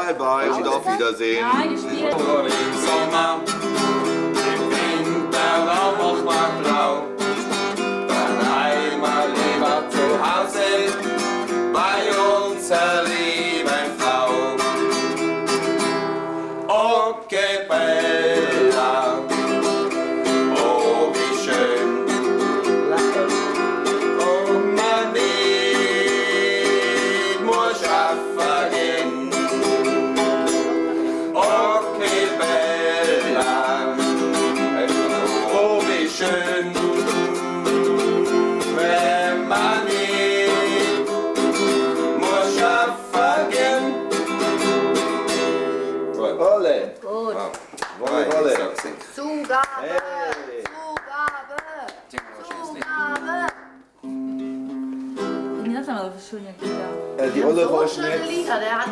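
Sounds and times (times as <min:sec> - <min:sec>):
man singing folk song: 0:00.0 - 0:15.2, 0:16.6 - 0:45.6, 0:57.2 - 0:58.5
acoustic guitar strumming: 0:00.0 - 0:46.6, 0:52.6 - 0:58.9.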